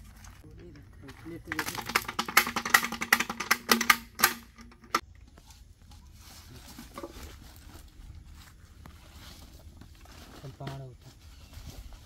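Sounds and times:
banana leaves rustling: 5.3 - 12.0.

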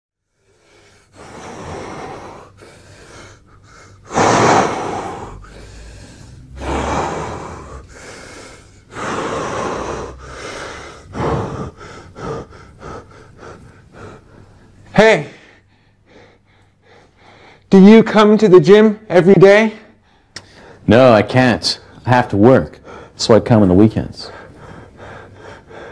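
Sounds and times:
person breathing with strain: 0.3 - 14.8, 15.4 - 17.7, 22.8 - 23.2, 24.3 - 25.9.

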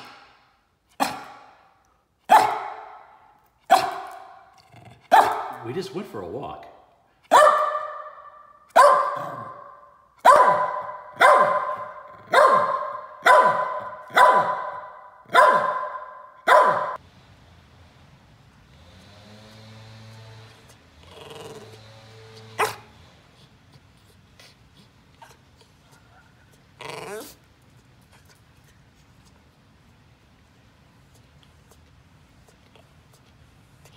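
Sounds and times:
small dog barking: 1.0 - 1.6, 2.3 - 4.5, 5.1 - 5.7, 7.3 - 17.0, 22.5 - 23.0, 25.2 - 27.4.

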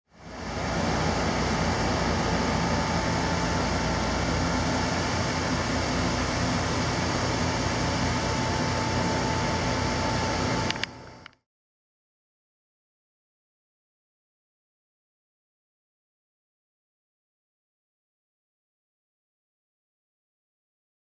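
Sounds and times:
faint steady hum: 0.1 - 11.4
clicks: 10.6 - 11.4.

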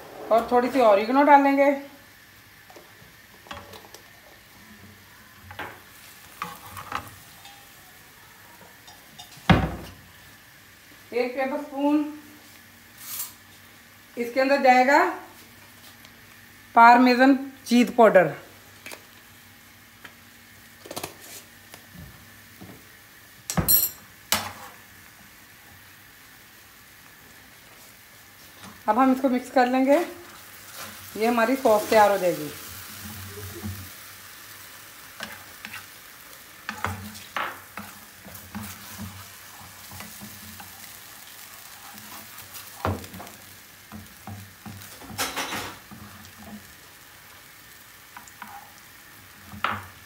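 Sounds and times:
sauce sizzling and bubbling: 0.0 - 50.0
metal utensils clinking in a pan: 6.4 - 7.8, 8.8 - 9.5, 23.5 - 24.6, 44.9 - 45.8.

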